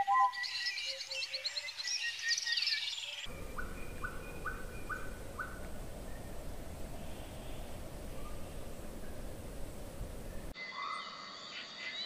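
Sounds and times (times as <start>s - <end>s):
songbirds chirping and trilling: 0.0s - 12.0s
steady background hiss: 3.3s - 10.6s.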